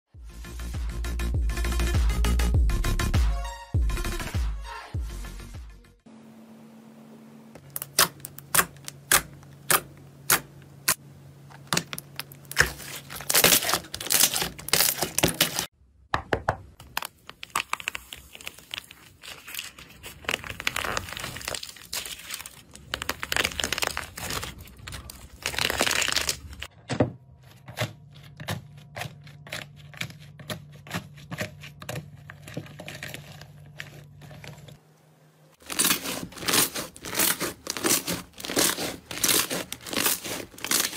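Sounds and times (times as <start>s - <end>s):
slime crust crackling: 11.5s - 15.7s, 16.8s - 26.7s, 35.6s - 40.9s.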